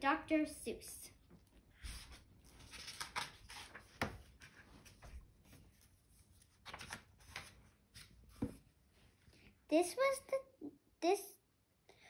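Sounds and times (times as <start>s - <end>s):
book pages rustling: 1.7s - 8.8s.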